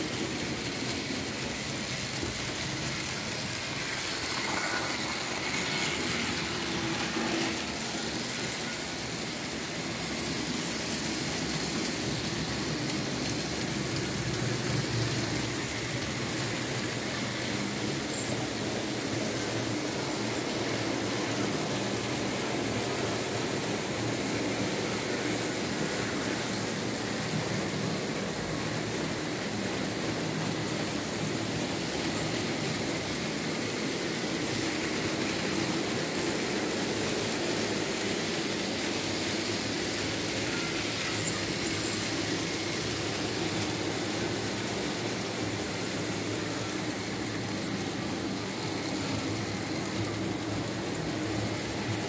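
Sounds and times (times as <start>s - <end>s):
model train motor hum: 0.0s - 52.0s
wheels rolling on track: 0.0s - 52.0s.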